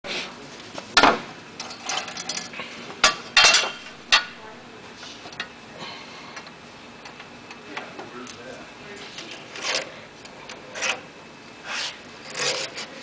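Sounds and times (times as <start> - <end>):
metal parts clicking and clacking: 1.6 - 4.3.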